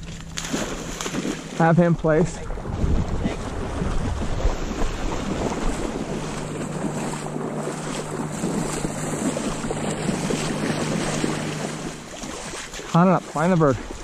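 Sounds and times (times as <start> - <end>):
dog plunging through water: 0.0 - 1.7, 2.4 - 14.0
splashing of shallow water: 0.0 - 14.0.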